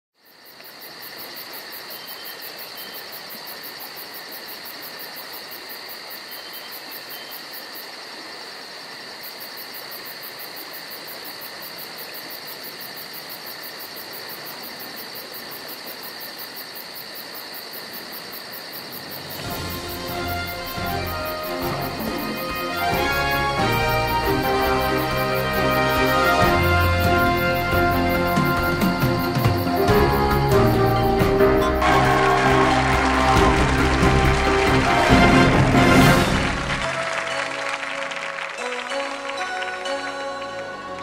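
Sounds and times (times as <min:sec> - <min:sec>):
high-pitched chirring hiss: 0:18.2 - 0:31.8.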